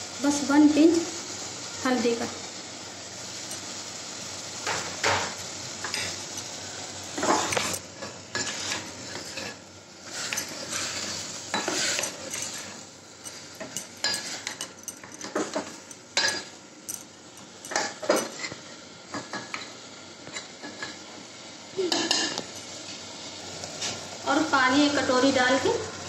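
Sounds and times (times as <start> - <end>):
meat sizzling: 0.0 - 26.0
spoon scraping metal pot: 7.2 - 16.5
spoon clinking against pot: 11.5 - 18.6.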